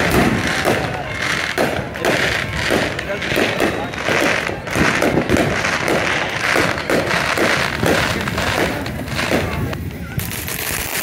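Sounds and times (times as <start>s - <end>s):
fireworks popping and banging: 0.0s - 11.0s.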